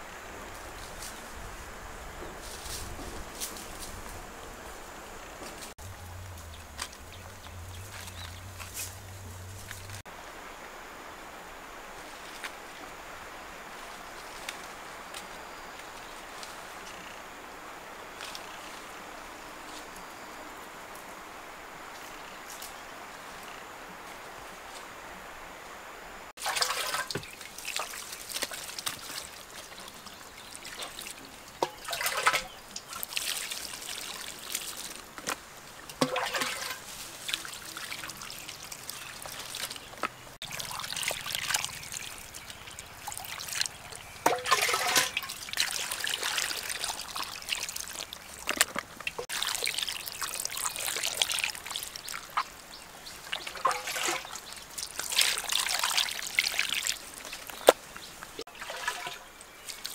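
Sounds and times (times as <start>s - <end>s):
water pouring and splashing: 26.3s - 59.9s.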